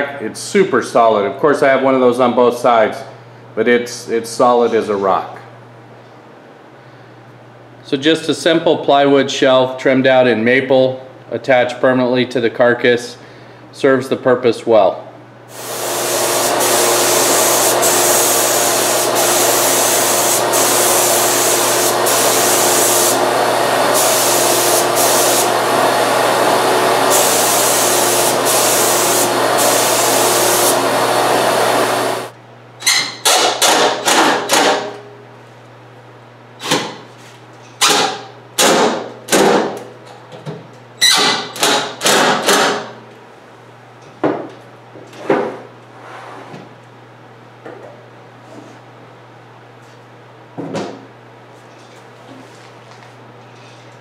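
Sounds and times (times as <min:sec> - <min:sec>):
spray gun hissing: 0:15.5 - 0:32.3.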